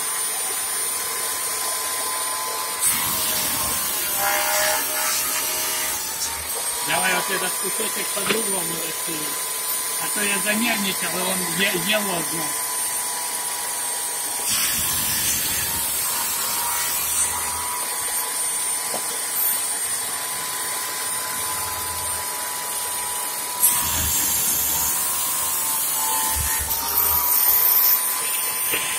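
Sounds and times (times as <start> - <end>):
saw motor whining: 0.0 - 28.9.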